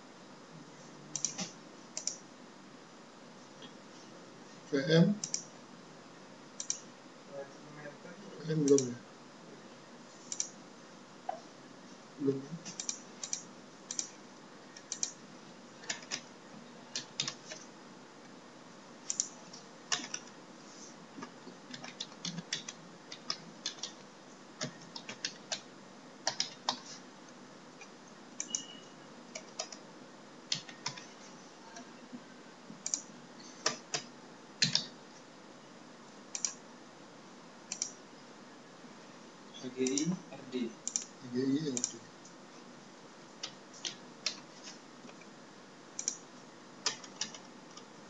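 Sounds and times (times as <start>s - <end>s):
computer keyboard typing: 1.1s - 2.2s, 5.2s - 5.5s, 10.3s - 10.6s, 12.6s - 14.2s, 14.8s - 15.2s, 15.8s - 16.3s, 16.9s - 17.7s, 19.1s - 20.4s, 21.6s - 24.0s, 24.6s - 26.9s, 27.8s - 29.8s, 30.5s - 31.1s, 32.8s - 34.9s, 36.4s - 36.6s, 37.7s - 38.0s, 40.8s - 42.0s, 46.0s - 46.2s, 46.8s - 47.9s.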